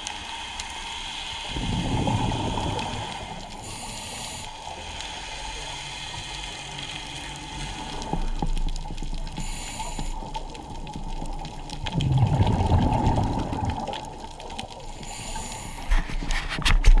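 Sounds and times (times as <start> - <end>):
regulator inhalation hiss: 0.2 - 8.2, 9.3 - 10.4, 14.9 - 15.9
exhaled bubbles underwater: 1.4 - 4.4, 5.2 - 15.8.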